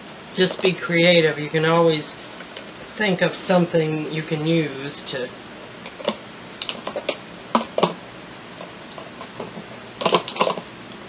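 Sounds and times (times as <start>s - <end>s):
plastic bottles clicking and knocking: 10.0s - 10.6s.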